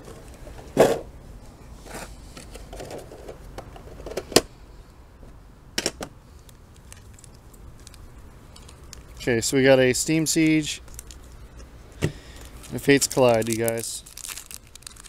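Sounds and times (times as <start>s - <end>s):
foil packs rustling: 6.8s - 11.4s, 12.1s - 15.0s.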